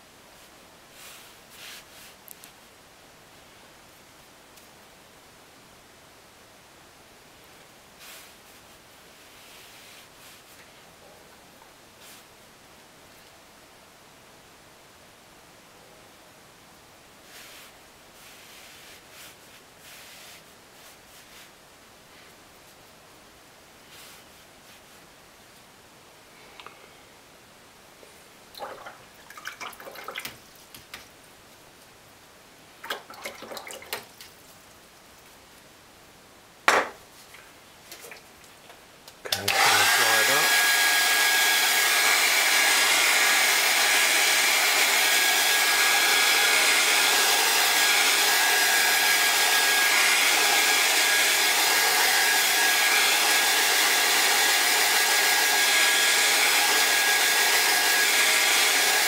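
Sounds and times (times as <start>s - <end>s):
hair dryer whining: 39.3s - 59.0s.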